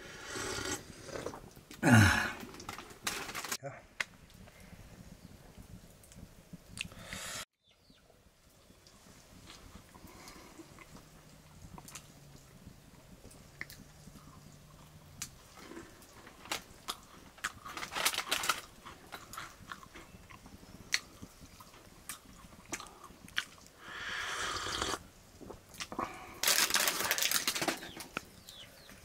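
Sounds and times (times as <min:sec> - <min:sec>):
loud slurping sips of hot drink: 0:00.0 - 0:01.4, 0:23.8 - 0:25.1
person chewing and crunching food: 0:13.3 - 0:27.6
mouth clicks: 0:22.7 - 0:25.0.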